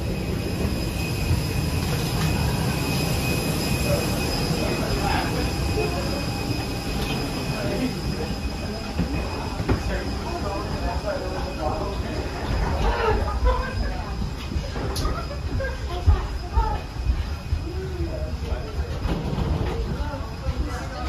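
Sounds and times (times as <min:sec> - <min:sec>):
high whine: 0:00.0 - 0:19.4.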